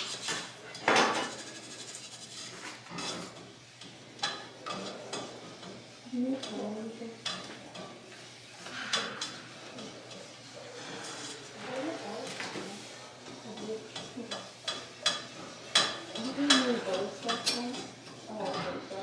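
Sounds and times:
utensil clinking and scraping pan: 8.6 - 19.0.

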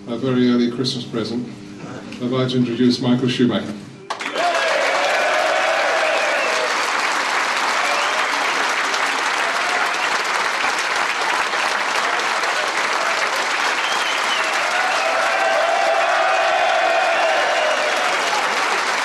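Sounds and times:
crowd applauding: 4.1 - 19.0.

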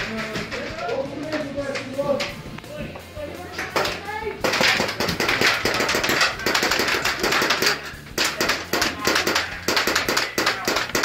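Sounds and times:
airsoft guns firing full auto: 3.8 - 11.0.

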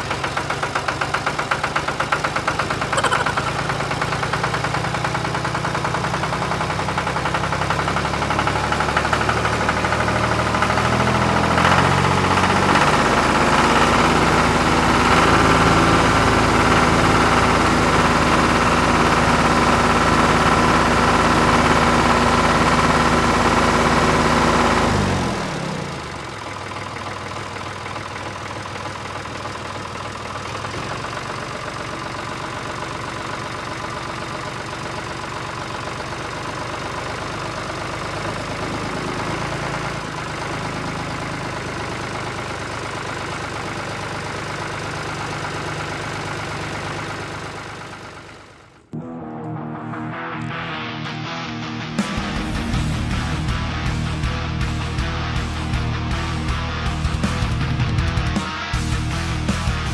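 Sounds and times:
boat engine running: 0.0 - 33.6.

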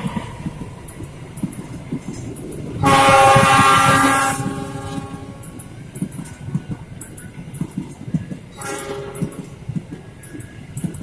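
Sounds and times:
train wheels clattering on rails: 0.0 - 11.0
locomotive air horn blast: 2.8 - 5.4, 8.6 - 9.2.

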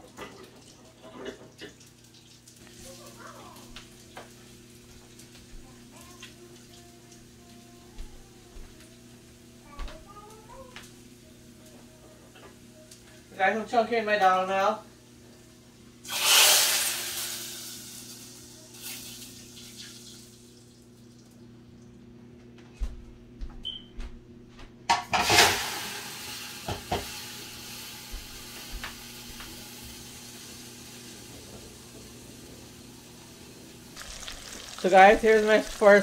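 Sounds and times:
hot oil sizzling hiss: 16.0 - 20.7, 25.1 - 36.0.

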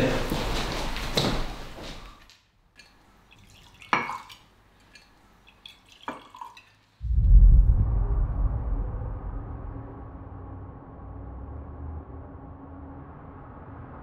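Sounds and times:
whisky pouring into glass: 3.3 - 6.9
deep low rumble: 7.0 - 14.0.

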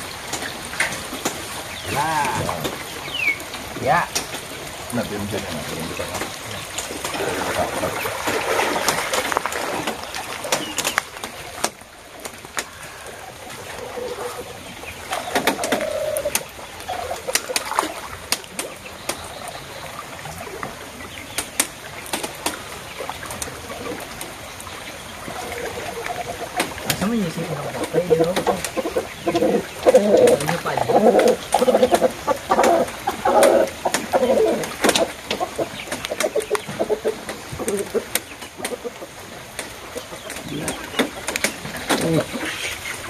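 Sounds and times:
water sloshing: 0.0 - 43.0
short sharp splashes: 6.1 - 12.6.

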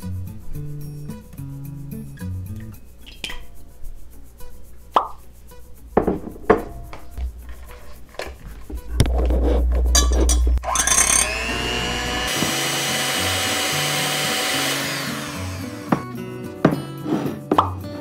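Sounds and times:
electric hand mixer whining: 10.6 - 16.2.

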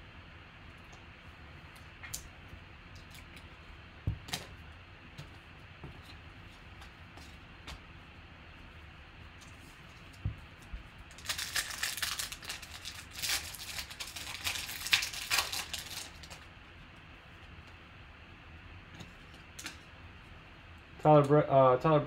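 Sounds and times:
card pack wrapper tearing and crinkling: 11.1 - 16.5.

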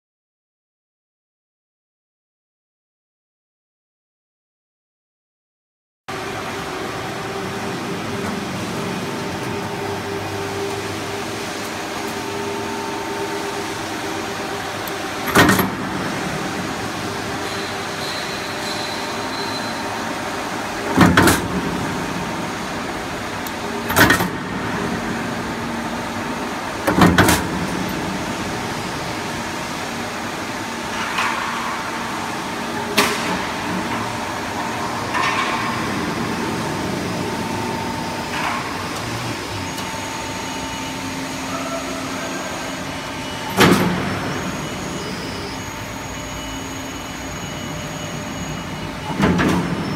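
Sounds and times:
machine mechanical hum: 6.1 - 49.9.

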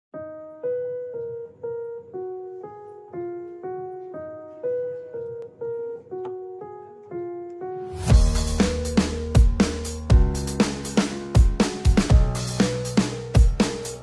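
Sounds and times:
keyboard melody: 0.1 - 14.0
drums and heavy bass: 8.1 - 14.0.

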